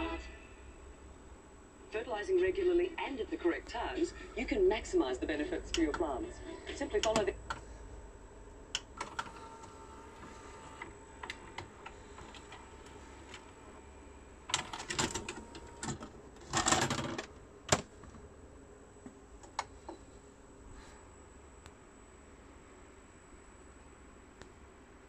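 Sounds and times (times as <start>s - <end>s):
faint whine: 0.0s - 25.0s
tape mechanism clicking and whirring: 6.8s - 7.6s, 8.7s - 13.8s, 14.4s - 17.9s.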